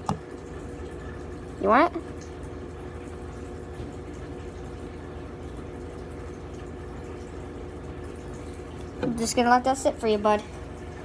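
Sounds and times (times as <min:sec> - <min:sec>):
aquarium filter humming: 0:00.0 - 0:11.0
water trickling: 0:00.0 - 0:11.0.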